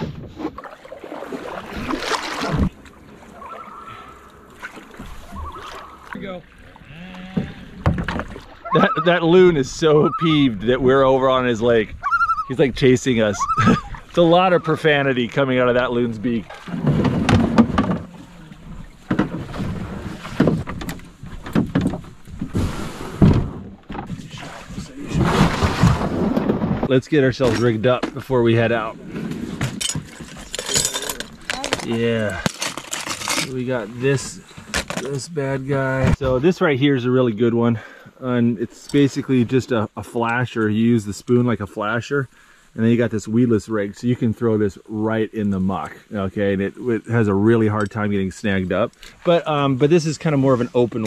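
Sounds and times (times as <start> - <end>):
paddle splashing in water: 0.0 - 10.5, 13.4 - 26.9
canoe hull scraping and thumping: 0.0 - 36.7
quiet water sounds: 0.0 - 51.0.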